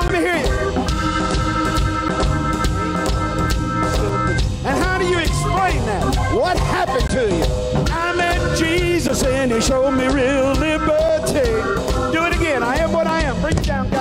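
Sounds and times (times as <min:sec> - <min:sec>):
blues band playing: 0:00.0 - 0:14.0.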